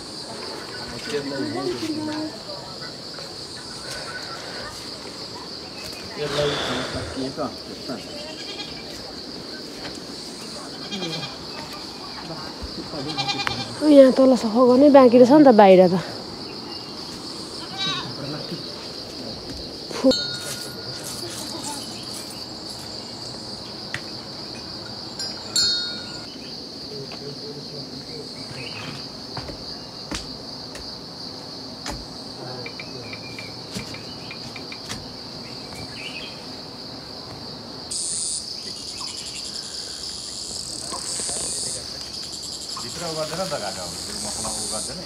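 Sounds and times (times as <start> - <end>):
hissy high insect sound: 0.0 - 45.0
insects chirping: 0.0 - 45.0.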